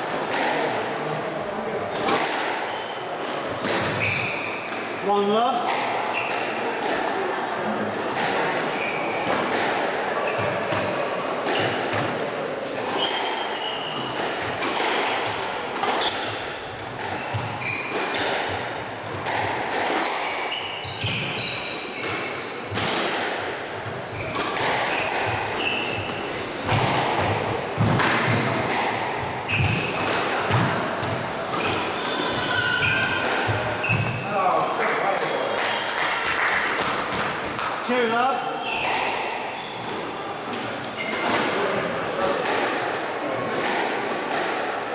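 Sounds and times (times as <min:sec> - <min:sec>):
squash ball hits: 0:01.9 - 0:07.1, 0:12.8 - 0:34.4, 0:38.7 - 0:44.8
shoes squeaking on wooden floor: 0:03.9 - 0:04.6, 0:08.7 - 0:09.3, 0:12.8 - 0:16.3, 0:17.2 - 0:18.0, 0:20.5 - 0:22.9, 0:23.9 - 0:26.9, 0:29.4 - 0:34.3, 0:38.6 - 0:41.6.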